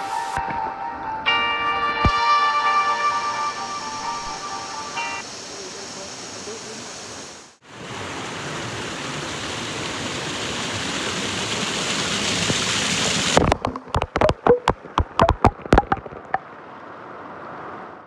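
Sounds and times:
waterfall pouring over rocks: 0:04.6 - 0:16.4
water dripping on microphone: 0:13.4 - 0:16.4.

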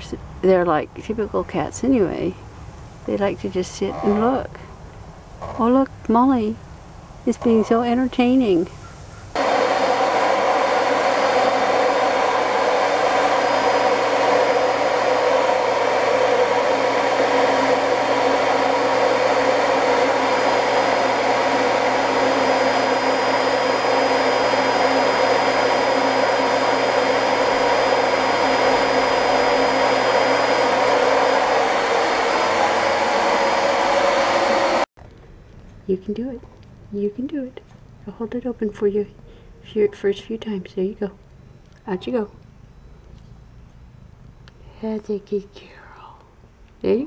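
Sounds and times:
vacuum cleaner running: 0:09.4 - 0:34.9.

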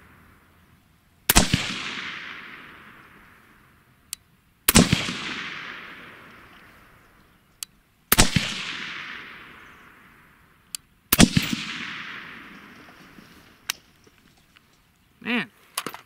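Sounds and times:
gunshot echo: 0:01.3 - 0:03.5, 0:04.7 - 0:06.8, 0:08.1 - 0:10.2, 0:11.1 - 0:13.4
suppressed rifle shots: 0:01.3 - 0:03.8, 0:04.7 - 0:07.1, 0:08.1 - 0:14.0.

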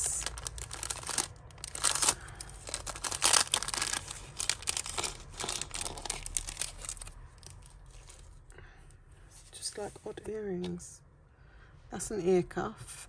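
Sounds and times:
plastic bag crinkling: 0:00.0 - 0:08.5.

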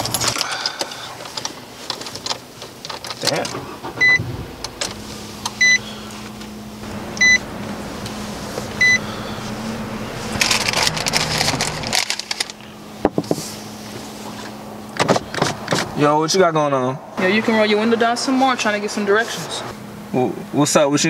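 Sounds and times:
steady low hum: 0:00.0 - 0:21.0
car warning chime beeping: 0:03.8 - 0:04.3, 0:05.6 - 0:05.8, 0:07.2 - 0:07.5, 0:08.8 - 0:10.2.

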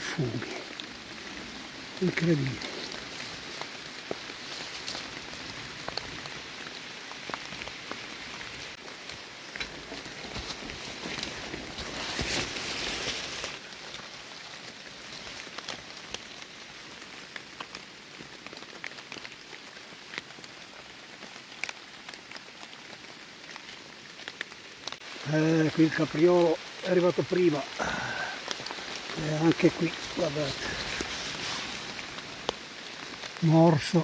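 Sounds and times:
rain on leaves and jacket: 0:00.0 - 0:34.0
hand rustling through leaves: 0:00.3 - 0:17.7, 0:25.9 - 0:33.4.

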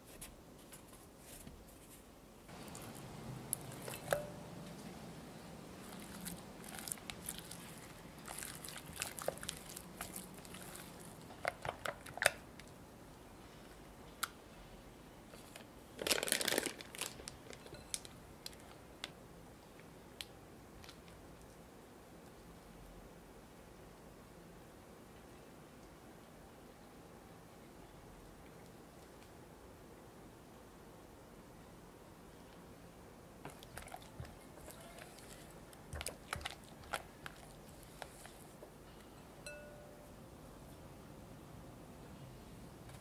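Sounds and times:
plastic crinkling: 0:05.8 - 0:12.7, 0:15.3 - 0:18.8.

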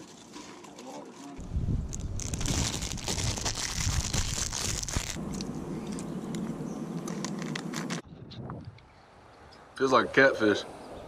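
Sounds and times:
plastic wrapper crinkling: 0:00.0 - 0:05.2, 0:07.0 - 0:08.0.

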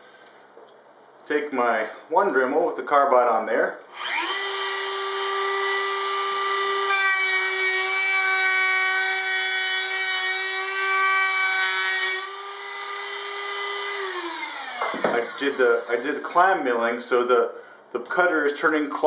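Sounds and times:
rotary tool whining: 0:03.9 - 0:08.2, 0:11.7 - 0:16.4.

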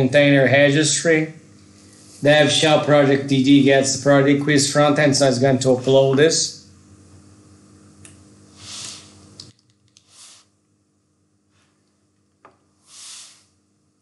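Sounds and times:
soft hissing: 0:08.5 - 0:09.3, 0:10.0 - 0:10.6, 0:12.8 - 0:13.6.

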